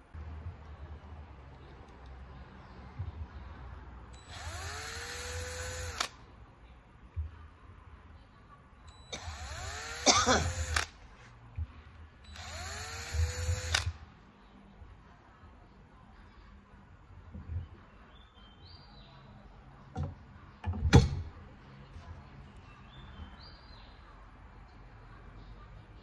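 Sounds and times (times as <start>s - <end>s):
cordless drill whining: 4.2s - 6.1s, 9.1s - 10.9s, 12.3s - 14.0s.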